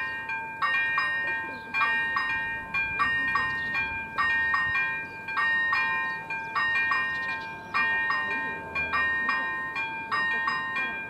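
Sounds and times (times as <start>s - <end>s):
level crossing bells dinging: 0.0s - 11.0s.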